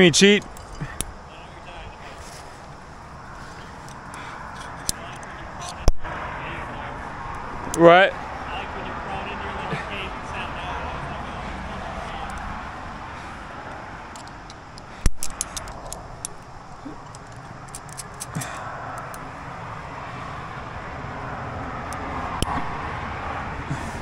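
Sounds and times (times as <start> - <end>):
metal climbing gear clinking: 0.0 - 1.2, 3.2 - 5.8, 14.1 - 19.3.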